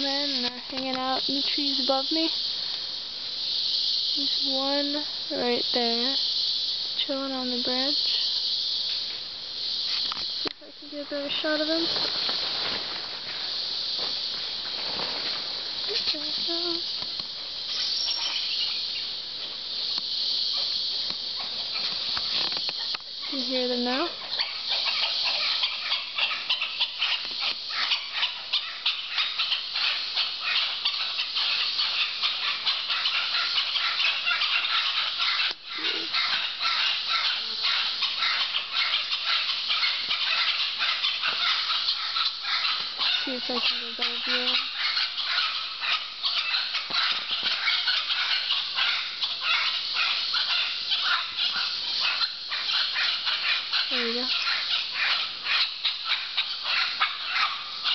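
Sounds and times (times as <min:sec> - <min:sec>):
howler monkeys howling: 0:22.8 - 0:57.9.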